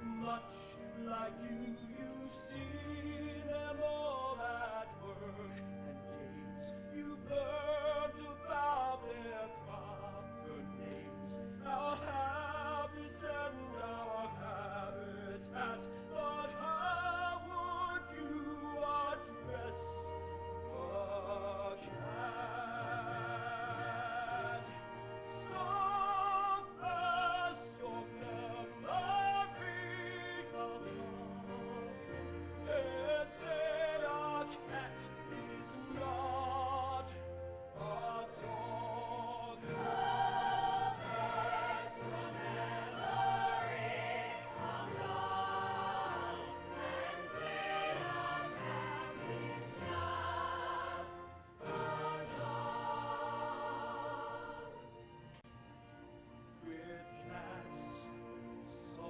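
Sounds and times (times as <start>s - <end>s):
orchestral accompaniment: 0.0s - 59.0s
man singing with vibrato: 32.6s - 39.8s.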